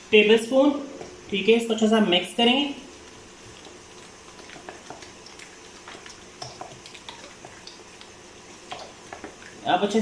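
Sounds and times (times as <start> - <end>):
spoon stirring thick marinade: 3.0 - 9.6.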